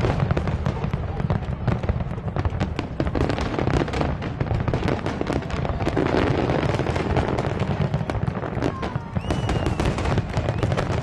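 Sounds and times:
fireworks bangs: 0.0 - 11.0
fireworks crackling: 0.0 - 11.0.

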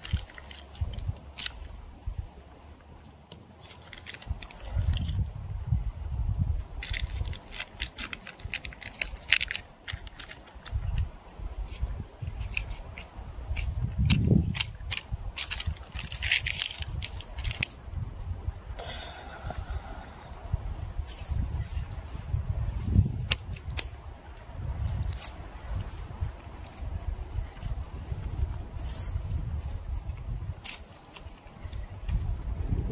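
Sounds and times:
dry twigs snapping: 0.0 - 1.7, 12.4 - 17.8.

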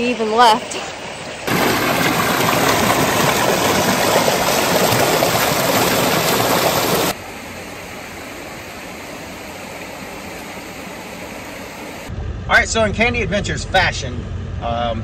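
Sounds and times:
creek water rushing over rocks: 1.5 - 7.2.

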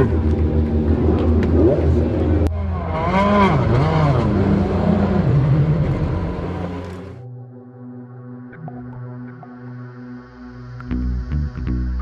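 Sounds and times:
race car engines revving: 0.0 - 7.2.

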